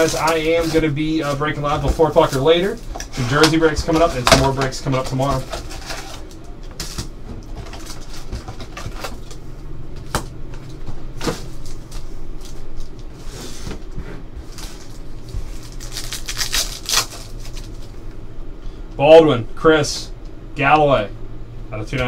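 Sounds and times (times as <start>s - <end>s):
foil pack crinkling: 0.0s - 7.0s, 14.4s - 18.0s.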